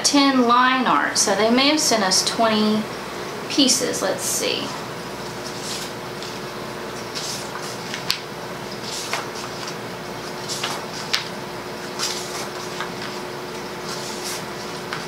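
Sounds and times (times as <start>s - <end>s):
paper rustling: 5.3s - 6.4s, 7.0s - 15.0s.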